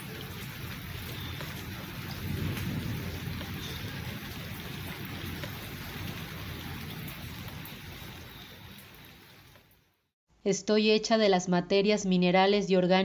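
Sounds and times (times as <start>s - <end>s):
rain falling on foliage: 0.0s - 10.1s.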